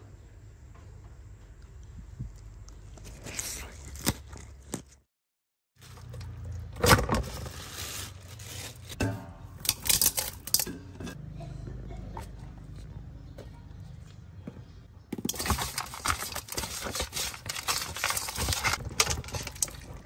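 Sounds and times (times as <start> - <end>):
faint handling sounds: 14.6 - 20.0.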